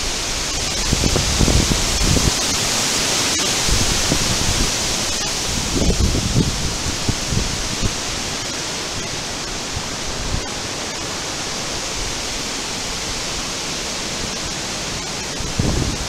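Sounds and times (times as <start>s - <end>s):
wind rushing through trees: 0.0s - 16.0s
wind buffeting microphone: 0.6s - 2.6s, 3.6s - 8.1s, 15.3s - 16.0s.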